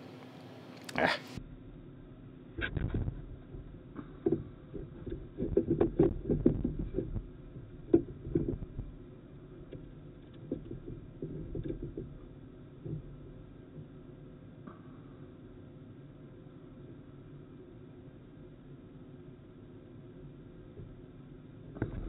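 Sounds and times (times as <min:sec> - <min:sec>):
muffled knocks and rubbing: 0:02.6 - 0:09.0, 0:09.6 - 0:13.9.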